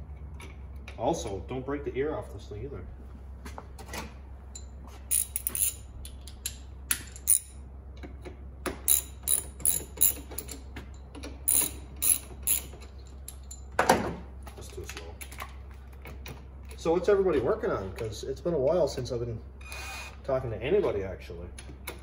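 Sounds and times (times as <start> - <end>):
hand ratchet clicking: 5.1 - 7.5, 8.8 - 10.6, 11.5 - 13.5.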